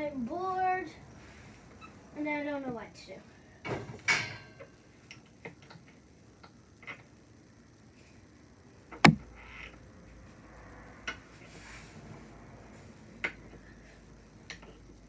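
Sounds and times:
loud knock with low thud: 9.0 - 9.3.

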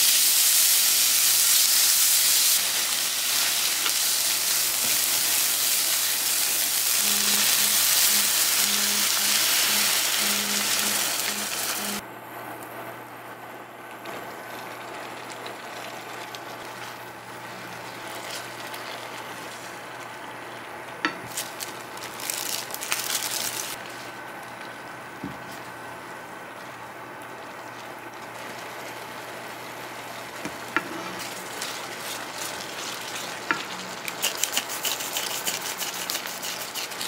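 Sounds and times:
food sizzling in a frying pan: 0.0 - 12.0, 28.1 - 36.4.

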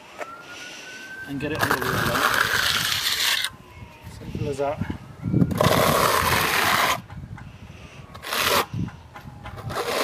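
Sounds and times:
trowel scraping render on wall: 1.5 - 3.5, 5.5 - 7.1, 8.2 - 8.7, 9.7 - 10.0.

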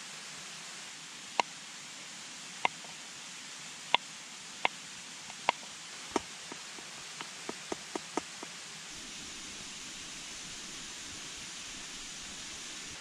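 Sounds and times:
stream rushing: 0.0 - 13.0.

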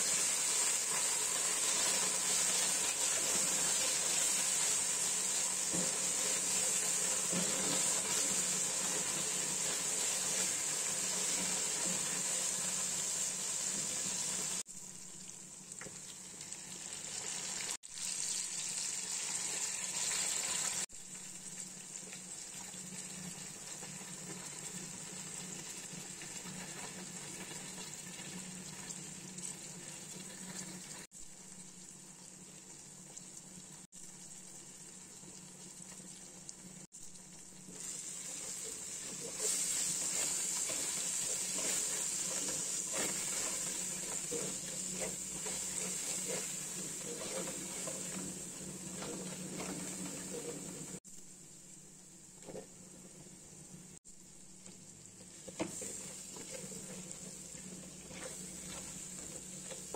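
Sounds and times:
wooden spatula stirring: 0.0 - 13.1, 37.7 - 51.0, 55.2 - 59.9
vegetables sizzling in hot oil: 0.0 - 59.9.

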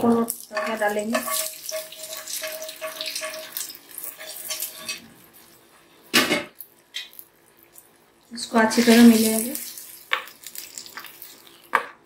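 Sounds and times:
hot oil sizzling and crackling: 0.0 - 12.0.

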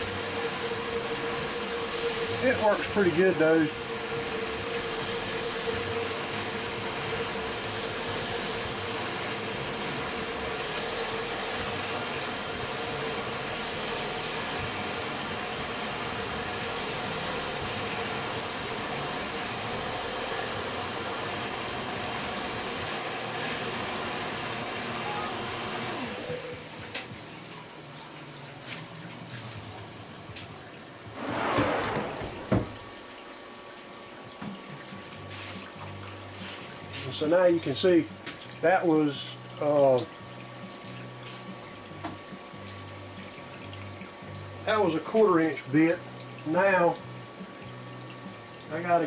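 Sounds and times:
spindle whine: 0.0 - 21.1, 31.1 - 33.2
milling machine drilling: 0.0 - 22.1
coolant hiss: 0.0 - 49.0
short high whine: 31.1 - 33.0.

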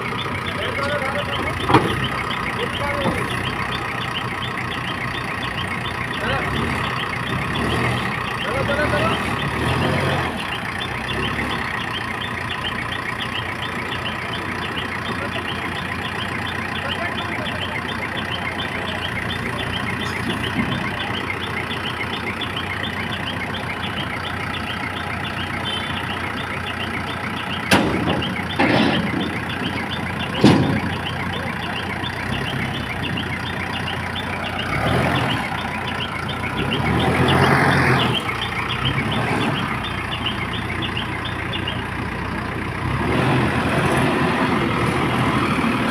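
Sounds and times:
diesel engine idling: 0.0 - 45.9
sharp knocks: 27.7 - 29.4.

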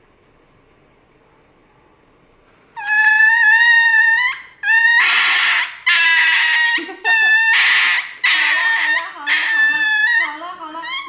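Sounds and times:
small dog screaming: 2.8 - 11.0.

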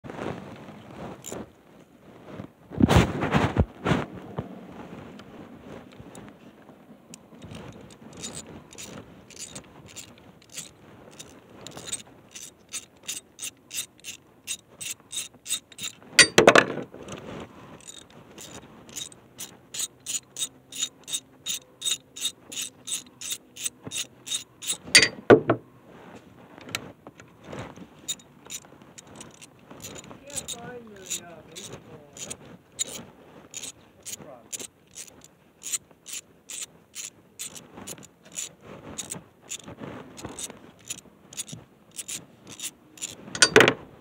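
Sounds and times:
ratchet wrench clicking: 7.1 - 16.4, 17.8 - 25.2, 29.2 - 43.7
metal clunk: 16.2 - 16.8, 25.0 - 25.6, 43.4 - 43.8.

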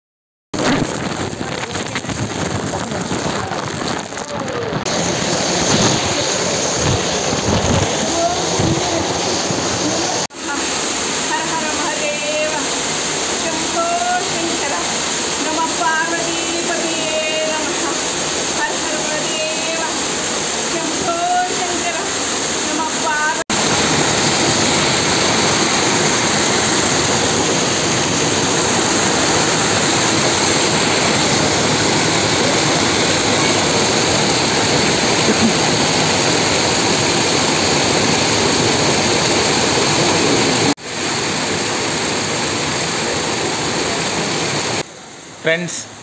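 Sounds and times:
waterfall rushing: 0.6 - 46.0.

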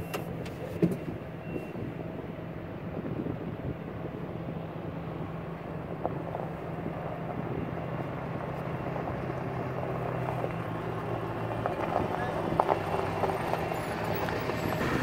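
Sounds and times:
heavy machinery engines droning: 0.0 - 15.0.

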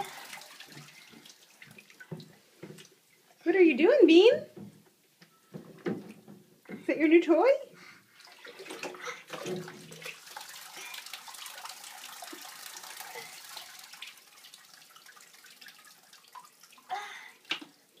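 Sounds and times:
water pouring and splashing: 0.0 - 3.0, 8.1 - 18.0.

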